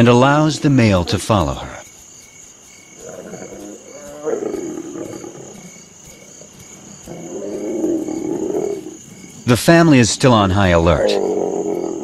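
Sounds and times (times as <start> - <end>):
crickets chirping: 0.0 - 12.0
lions growling: 3.0 - 9.1, 10.6 - 12.0.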